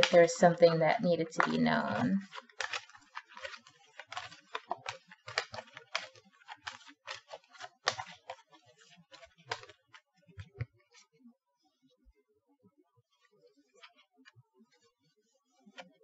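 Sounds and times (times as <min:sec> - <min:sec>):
cards clicking and rustling: 0:00.0 - 0:00.3, 0:01.2 - 0:10.7.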